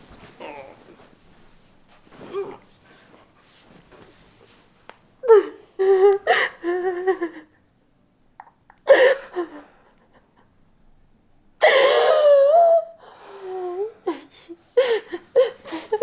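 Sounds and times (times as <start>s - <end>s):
woman sobbing and whimpering: 5.2s - 7.7s, 8.8s - 10.5s, 11.6s - 16.0s.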